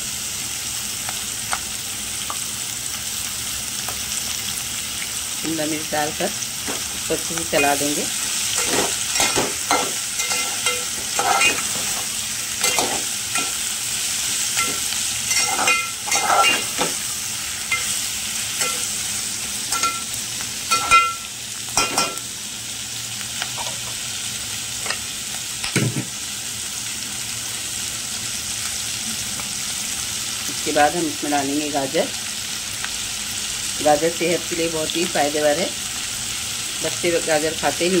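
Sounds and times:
vegetables sizzling in a pot: 0.0s - 38.0s
metal spatula scraping a pot: 8.6s - 13.5s, 14.6s - 16.9s.

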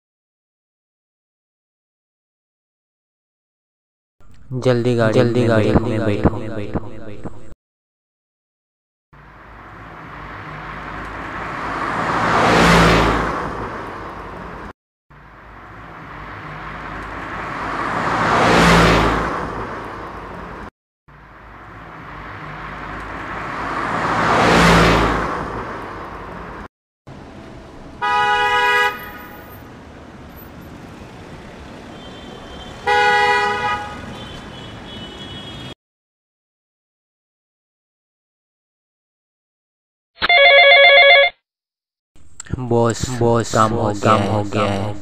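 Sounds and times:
car passing by: 9.2s - 14.7s, 15.3s - 20.7s, 21.3s - 35.8s
car horn honks: 28.0s - 29.6s, 31.9s - 35.7s.

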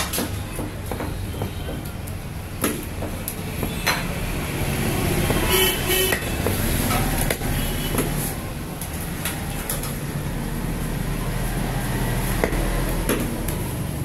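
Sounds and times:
street traffic rumble: 0.0s - 14.0s
vehicle horn tooting: 5.4s - 6.4s.

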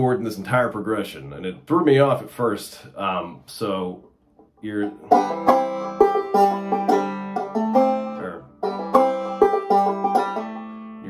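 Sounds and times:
banjo melody: 4.6s - 11.0s.

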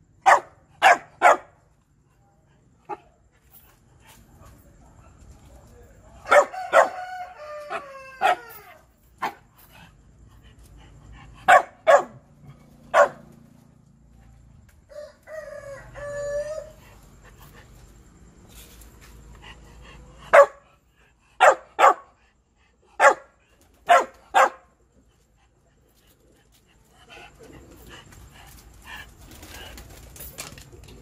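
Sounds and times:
dog barking: 0.2s - 1.6s, 6.2s - 7.1s, 8.2s - 8.6s, 11.4s - 13.3s, 20.2s - 20.8s, 21.4s - 22.2s, 23.0s - 24.7s.

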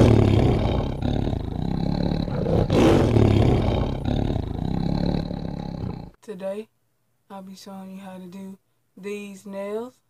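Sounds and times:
rough roaring sound effect: 0.0s - 6.1s.

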